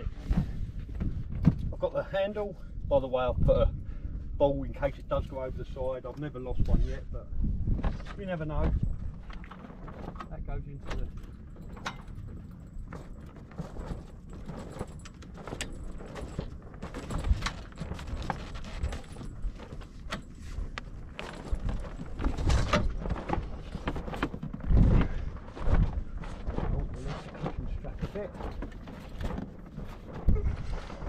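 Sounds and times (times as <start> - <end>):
metallic clicks and knocks of gear: 9.3 - 24.7.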